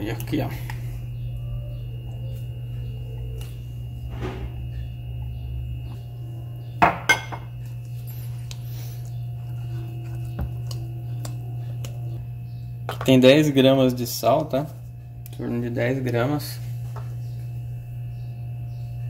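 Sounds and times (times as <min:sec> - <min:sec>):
stirring wet dough: 0:07.8 - 0:12.2.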